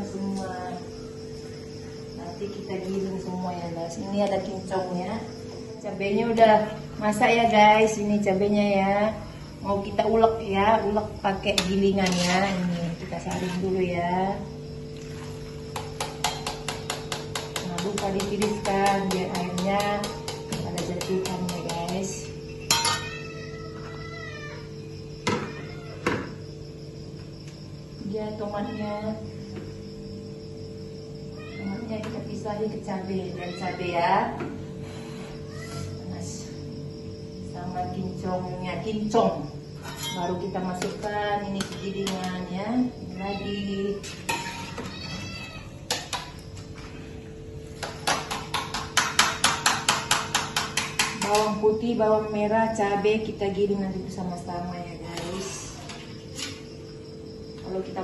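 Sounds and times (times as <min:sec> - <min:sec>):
steady background hum: 0:00.0 - 0:58.0
metal utensils clinking on a wok: 0:22.7 - 0:23.2, 0:39.8 - 0:40.3.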